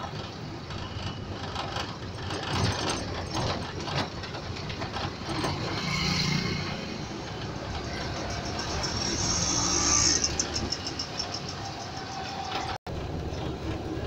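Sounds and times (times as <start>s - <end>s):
vehicle body rattling: 0.0s - 6.0s.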